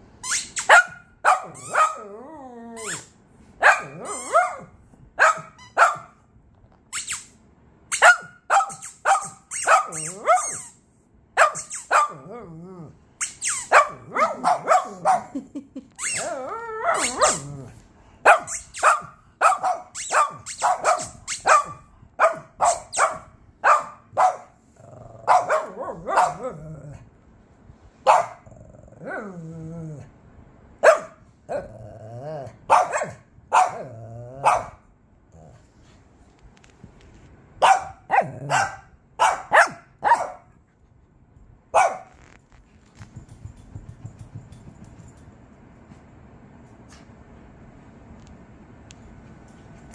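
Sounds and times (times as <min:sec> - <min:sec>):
small dogs yapping: 0:00.3 - 0:02.2, 0:02.8 - 0:06.0, 0:08.0 - 0:10.8, 0:16.0 - 0:17.7, 0:18.3 - 0:24.4
dog growls: 0:12.2 - 0:13.0, 0:16.2 - 0:17.8, 0:24.8 - 0:25.3, 0:26.4 - 0:27.0, 0:28.4 - 0:30.1, 0:31.5 - 0:32.6, 0:33.8 - 0:34.4.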